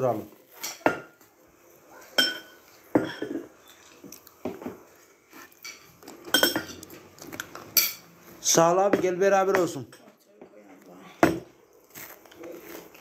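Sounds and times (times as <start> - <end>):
cutlery clinking against dishes: 2.2 - 3.5, 5.6 - 8.1.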